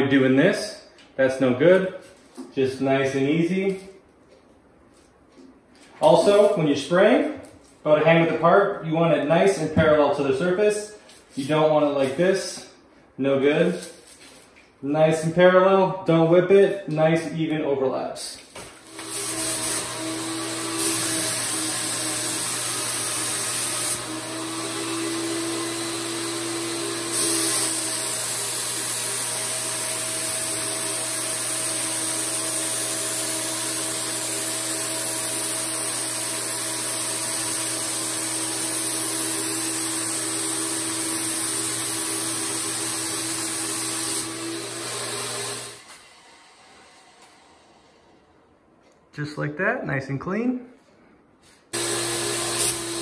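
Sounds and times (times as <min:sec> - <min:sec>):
spray gun hissing: 0:18.9 - 0:20.0, 0:38.4 - 0:44.3, 0:51.8 - 0:53.0
turbine running: 0:51.8 - 0:53.0.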